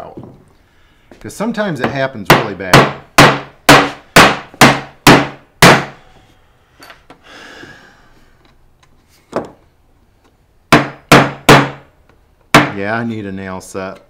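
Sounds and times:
hammer driving nail into wood: 0:02.3 - 0:06.0, 0:10.7 - 0:11.9, 0:12.5 - 0:12.8.

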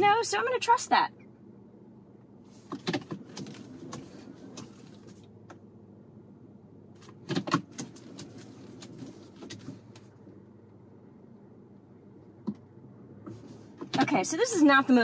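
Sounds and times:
faint low hum: 0:00.0 - 0:15.0
steering wheel clicks and knocks: 0:02.6 - 0:05.6, 0:07.0 - 0:10.1, 0:13.2 - 0:14.2.

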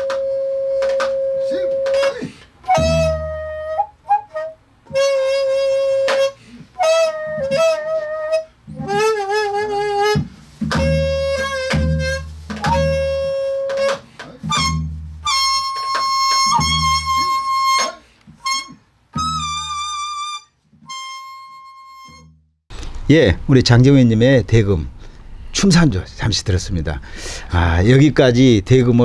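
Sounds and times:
bamboo flute playing: 0:00.0 - 0:22.5.

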